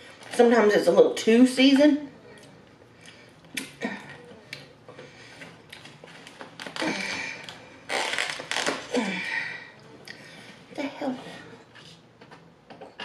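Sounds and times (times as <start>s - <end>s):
plastic lid crackling and creaking: 6.2s - 8.9s.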